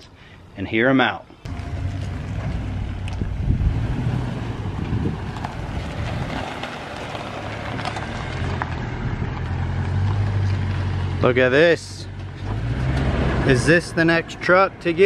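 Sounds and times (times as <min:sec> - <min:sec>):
wind buffeting microphone: 0:02.2 - 0:09.6.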